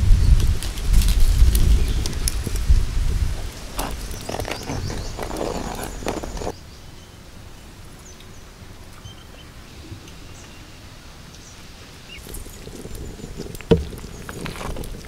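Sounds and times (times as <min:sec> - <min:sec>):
outdoor background: 0:00.0 - 0:15.0
ladle scraping clay pot: 0:00.7 - 0:06.5, 0:12.2 - 0:15.0.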